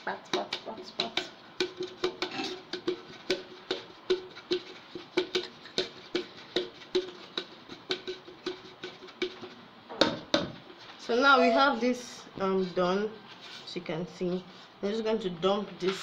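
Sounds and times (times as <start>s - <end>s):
hand tapping metal cake pan: 0.3s - 10.6s.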